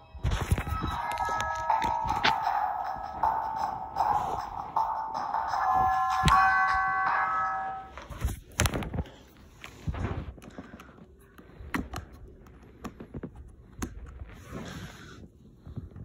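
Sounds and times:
electronic musical tone: 0.4 - 8.2.

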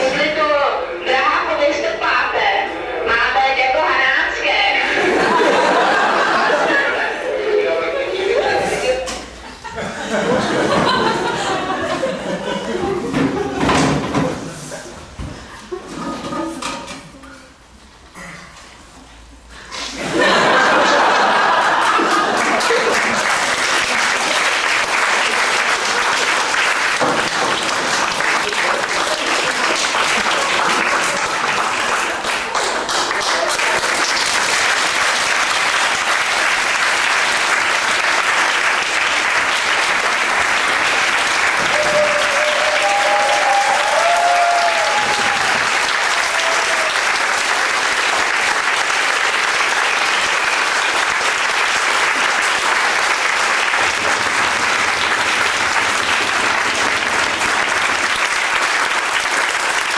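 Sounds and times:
audience applauding: 4.9 - 9.1, 20.0 - 59.9.

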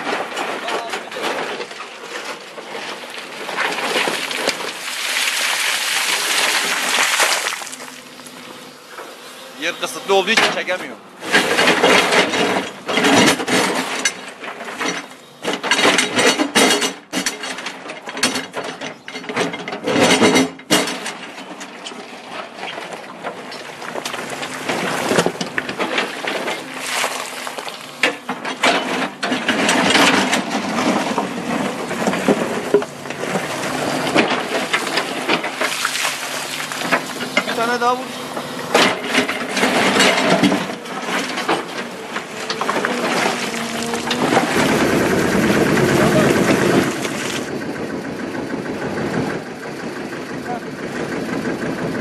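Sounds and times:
stones clattering against bucket: 0.1 - 8.1, 23.5 - 37.6, 38.9 - 47.4
low machine hum: 2.6 - 10.3, 22.0 - 52.0.

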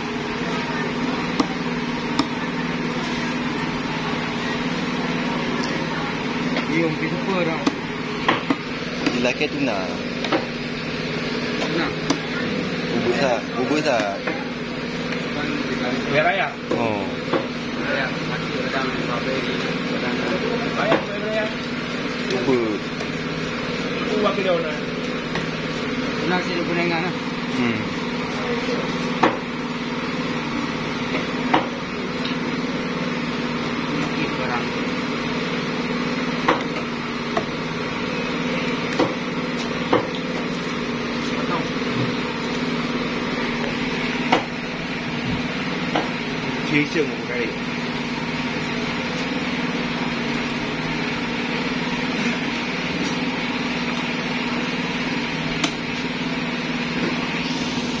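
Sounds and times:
steady mechanical hum: 0.0 - 58.0
knife chopping into wooden block: 1.2 - 2.4, 7.6 - 9.2, 10.2 - 10.6, 11.6 - 12.3, 29.2 - 29.5, 36.4 - 37.5, 38.9 - 40.2.

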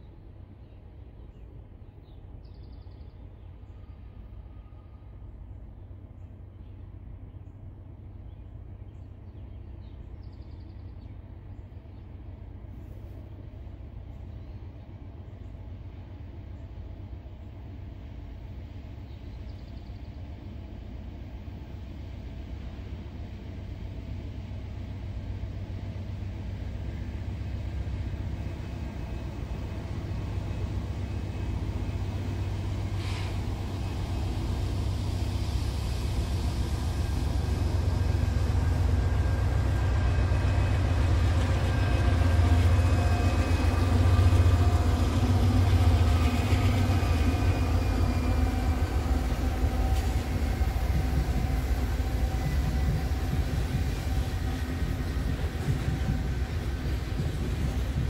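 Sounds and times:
locomotive diesel engines droning: 20.2 - 58.0.

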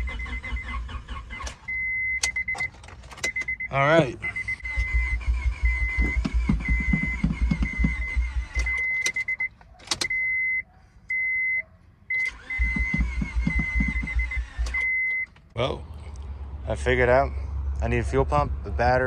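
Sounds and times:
engine cranking by starter: 0.0 - 3.6, 4.2 - 10.2, 12.1 - 15.6
high warning chime beeping: 1.7 - 15.3.

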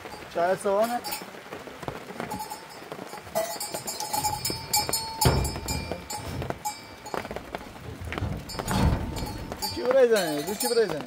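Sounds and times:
low rumble of rain: 0.0 - 11.0
bell clinking: 2.3 - 7.2, 8.5 - 11.0.

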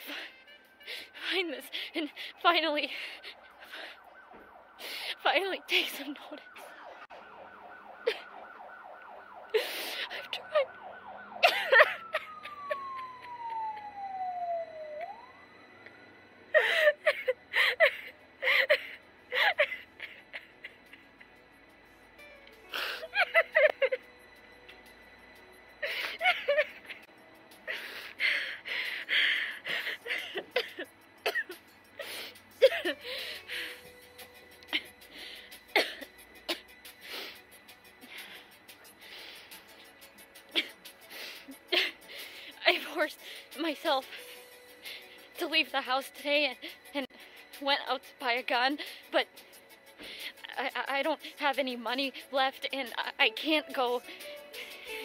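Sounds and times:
woman sobbing: 0.0 - 4.0, 4.8 - 6.6, 8.0 - 8.4, 9.5 - 13.4, 16.5 - 21.4, 22.7 - 24.1, 25.8 - 27.1, 27.7 - 34.0, 34.6 - 37.4, 40.5 - 45.3
siren yelping: 0.1 - 21.4, 25.5 - 30.9.

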